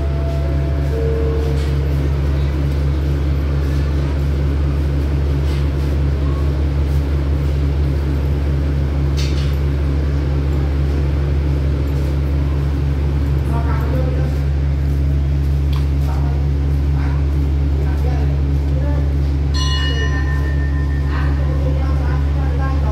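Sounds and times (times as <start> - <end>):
diesel train engine idling: 0.0 - 22.9.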